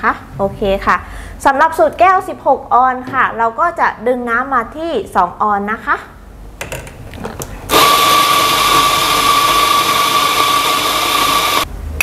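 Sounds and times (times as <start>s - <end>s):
coffee grinder motor whirring: 7.7s - 11.7s.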